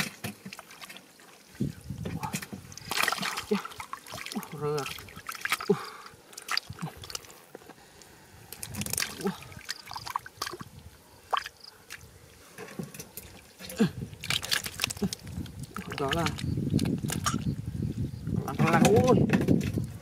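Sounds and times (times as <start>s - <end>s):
small water splashes: 0.0s - 7.5s, 8.5s - 12.2s, 13.2s - 17.6s
hands squelching in mud: 2.7s - 7.5s, 8.5s - 10.7s, 13.6s - 17.5s.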